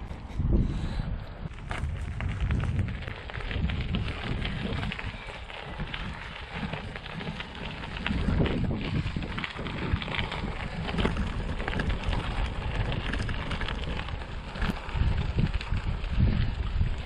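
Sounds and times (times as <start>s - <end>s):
tyres crackling on rough surface: 0.0s - 17.0s
wind buffeting microphone: 0.0s - 17.0s.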